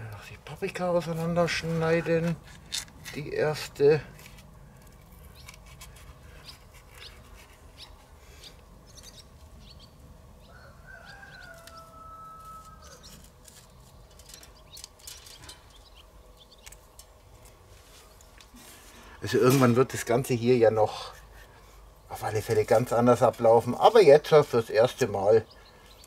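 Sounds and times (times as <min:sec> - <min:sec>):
rooster crowing: 0:10.4 - 0:13.3.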